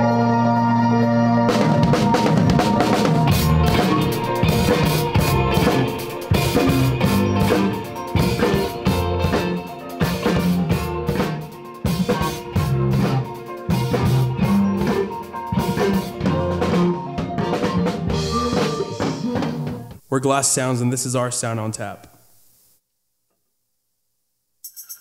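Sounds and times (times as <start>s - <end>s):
organ-like held chord: 0.0s - 10.9s
rock band drums and bass: 1.2s - 20.0s.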